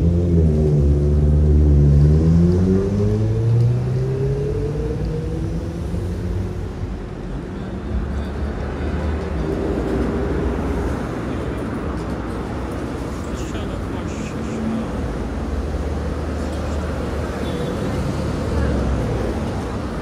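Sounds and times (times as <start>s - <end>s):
vehicle engine accelerating: 0.0s - 6.8s
street traffic noise: 0.0s - 20.0s.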